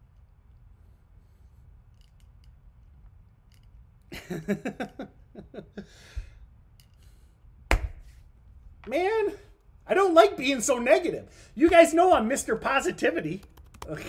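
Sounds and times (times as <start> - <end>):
breath out: 5.8 - 7.4.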